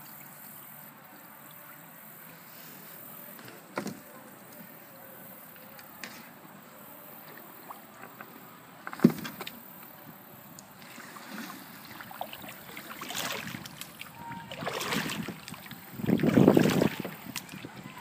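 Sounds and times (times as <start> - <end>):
paddle strokes splashing: 5.4 - 18.0.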